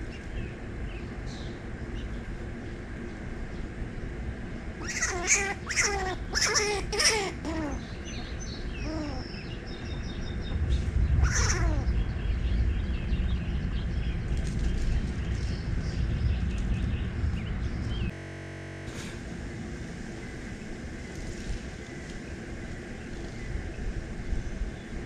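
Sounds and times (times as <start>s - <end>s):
low steady rumble: 0.0s - 25.0s
animal calls falling in pitch: 11.2s - 11.9s.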